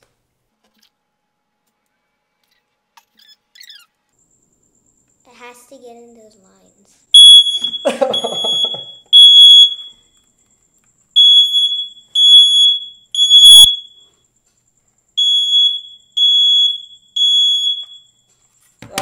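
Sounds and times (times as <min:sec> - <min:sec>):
smoke alarm beeping: 0:07.1 - 0:10.3, 0:11.1 - 0:14.3, 0:15.2 - 0:18.5
person laughing: 0:07.7 - 0:09.0.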